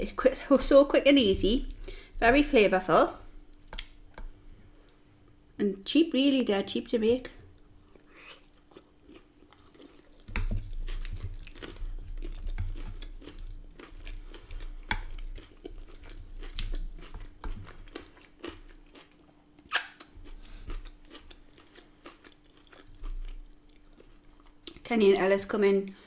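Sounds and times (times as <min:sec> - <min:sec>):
chewing and crunching food: 0:07.3 - 0:24.9.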